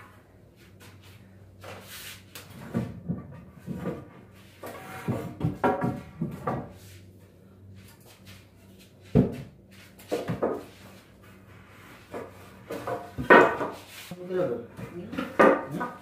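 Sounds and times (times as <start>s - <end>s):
wooden boards scraping and knocking: 2.5s - 6.8s, 12.0s - 14.0s, 15.1s - 16.0s.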